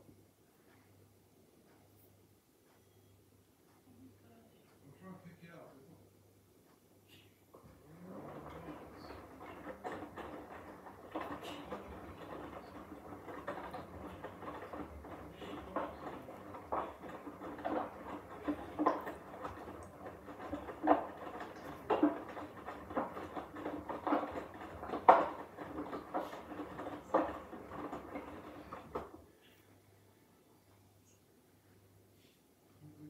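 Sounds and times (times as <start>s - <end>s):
washing machine drum tumbling: 7.7s - 29.3s.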